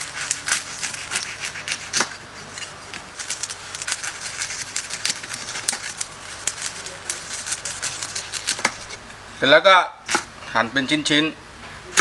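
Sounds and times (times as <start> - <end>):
crackling skin crunching: 0.0 - 9.0
knife sawing through crispy pork: 0.0 - 9.0.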